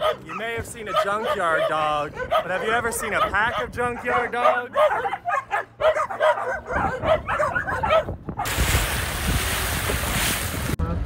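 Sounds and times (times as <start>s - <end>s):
dogs barking: 0.0s - 8.5s.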